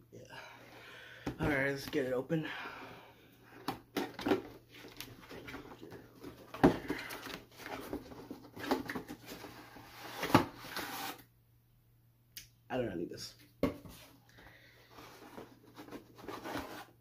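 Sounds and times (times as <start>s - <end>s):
cardboard packaging rustling: 3.9s - 11.2s, 14.8s - 17.0s.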